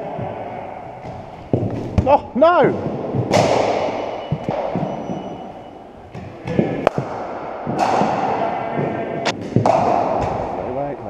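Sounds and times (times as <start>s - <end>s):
cricket bat hitting ball: 2.7s - 5.0s, 6.1s - 10.6s
sharp crack: 3.3s - 4.7s, 6.8s - 8.6s.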